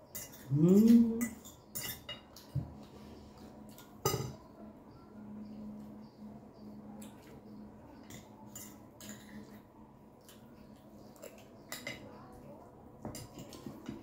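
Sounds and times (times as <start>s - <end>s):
cutlery clinking on glass plates: 0.0s - 2.7s, 3.8s - 4.4s, 8.0s - 9.6s, 11.2s - 12.1s, 13.0s - 14.0s
person humming: 0.5s - 1.2s.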